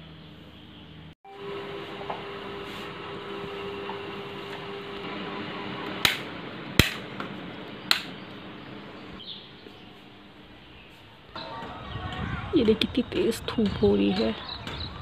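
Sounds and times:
steady background hum: 0:00.0 - 0:15.0
rocker switch clicks: 0:07.9 - 0:08.1.

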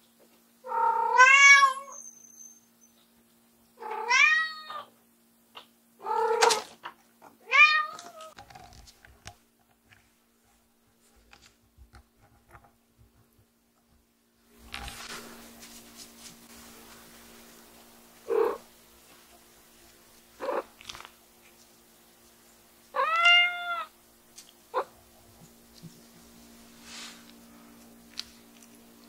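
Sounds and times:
cat meowing loudly: 0:00.7 - 0:02.0, 0:03.8 - 0:04.9, 0:07.4 - 0:08.3, 0:23.0 - 0:23.9.

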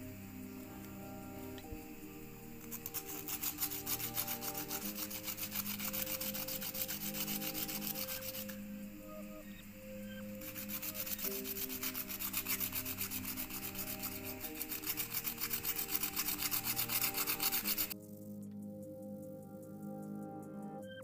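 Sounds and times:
sandpaper scratching on wood: 0:02.6 - 0:08.6, 0:10.4 - 0:18.0.

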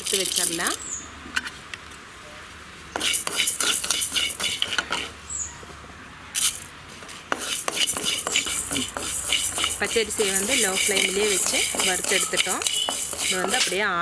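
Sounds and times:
rice rattling in metal pan: 0:03.0 - 0:05.2, 0:07.4 - 0:14.0.

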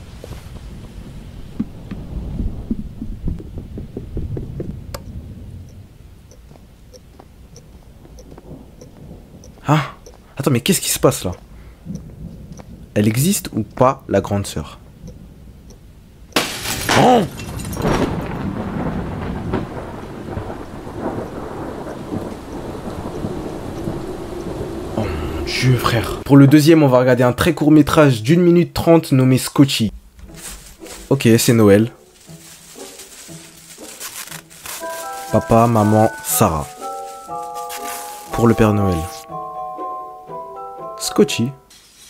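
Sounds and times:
dull thumps: 0:00.0 - 0:05.3
low rumbling thunder: 0:00.0 - 0:06.2, 0:07.9 - 0:10.0, 0:11.5 - 0:13.5, 0:17.3 - 0:26.3
low rumble: 0:00.0 - 0:09.6
steady rain: 0:00.0 - 0:26.4, 0:29.9 - 0:39.3
faint even ticks: 0:04.0 - 0:12.7.

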